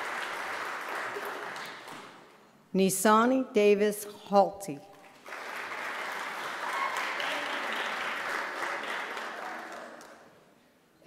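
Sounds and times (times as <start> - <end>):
audience applauding: 0.0 - 2.2, 5.0 - 10.4.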